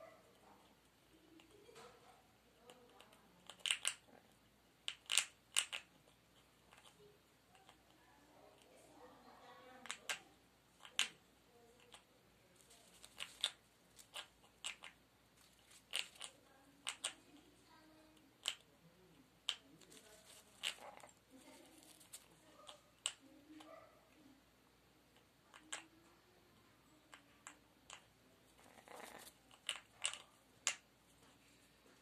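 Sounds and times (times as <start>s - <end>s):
parrot beak tearing tissue: 12.6s - 16.4s, 19.9s - 22.3s, 28.6s - 30.2s.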